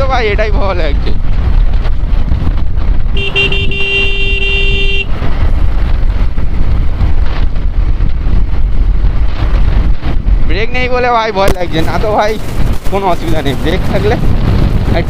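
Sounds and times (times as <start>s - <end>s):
wind and road noise: 0.0s - 15.0s
vehicle horn honking: 3.1s - 5.2s.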